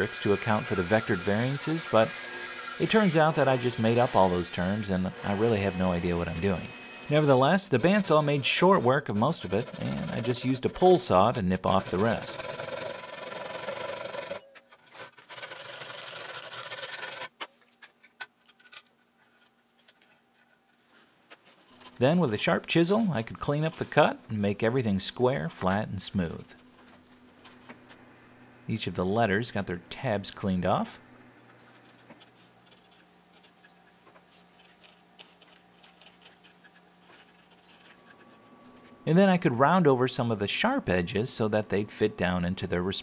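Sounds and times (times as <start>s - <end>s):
saw rasping through wood: 0.0s - 17.4s
chisel scraping wood: 0.0s - 17.5s, 31.6s - 38.6s.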